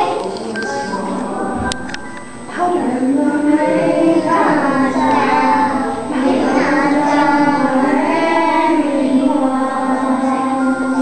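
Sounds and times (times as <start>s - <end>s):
children singing together: 0.0s - 11.0s.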